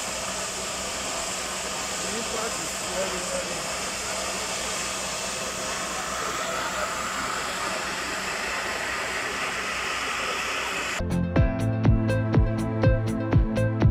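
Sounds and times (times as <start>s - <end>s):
gas hissing under pressure: 0.0s - 11.0s.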